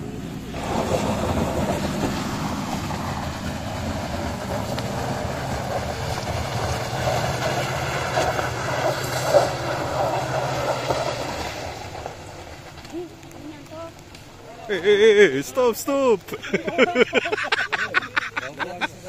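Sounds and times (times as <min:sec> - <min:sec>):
engine running under load: 0:00.0 - 0:14.5.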